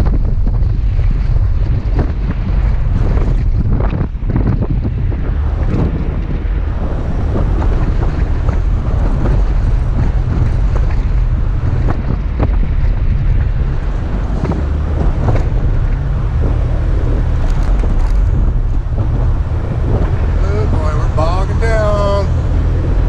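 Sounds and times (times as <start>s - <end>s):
low engine drone: 0.0s - 23.0s
wind buffeting microphone: 0.0s - 23.0s.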